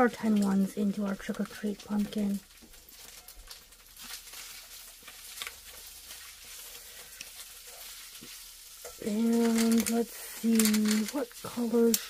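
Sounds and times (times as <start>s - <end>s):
paper rustling: 9.0s - 12.0s.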